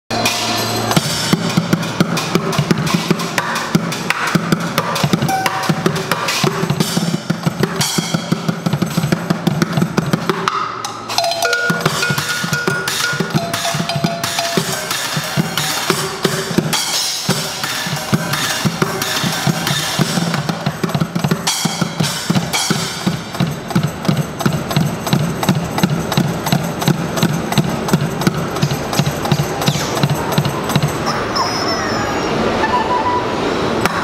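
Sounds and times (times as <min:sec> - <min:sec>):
cymbals: 0:00.1 - 0:34.0
drumming on plastic buckets: 0:01.0 - 0:31.1.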